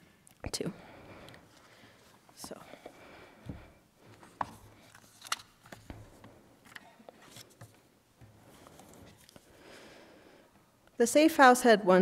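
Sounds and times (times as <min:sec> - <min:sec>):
paper rustling: 0:04.2 - 0:07.8.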